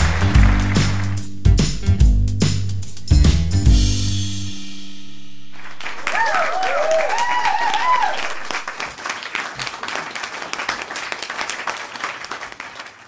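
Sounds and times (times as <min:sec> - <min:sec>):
crowd clapping: 0:00.0 - 0:01.3, 0:05.6 - 0:13.0
crowd woo shouts: 0:06.0 - 0:08.6.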